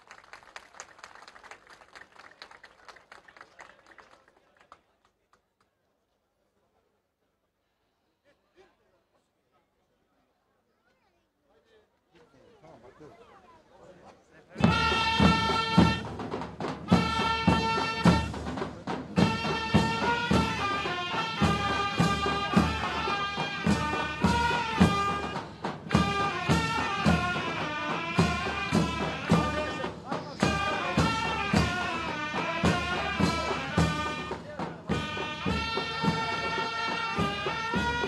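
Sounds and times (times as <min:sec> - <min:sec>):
steady drum beats: 0:14.5 - 0:38.0
wind instruments playing melody: 0:14.6 - 0:38.0.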